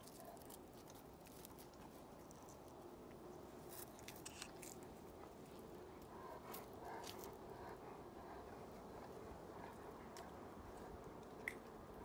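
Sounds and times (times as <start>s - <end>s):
kitten claws scratching bark: 3.6s - 4.8s.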